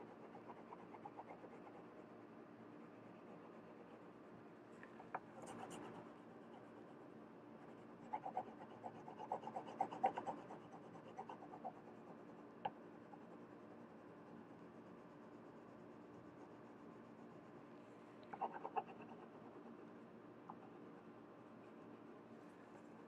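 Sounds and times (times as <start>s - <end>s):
pencil scratching on paper: 0.0s - 2.2s, 2.8s - 4.2s, 5.4s - 7.0s, 7.6s - 17.6s, 18.3s - 19.8s.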